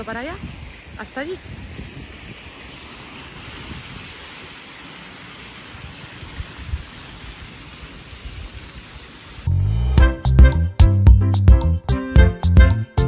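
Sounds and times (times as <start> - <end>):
fountain water splashing: 0.0 - 9.5
loud music: 9.5 - 13.0.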